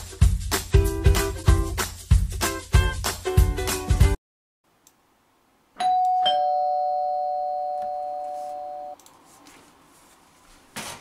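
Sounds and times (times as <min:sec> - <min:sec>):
ding-dong doorbell chime: 0:05.8 - 0:09.0.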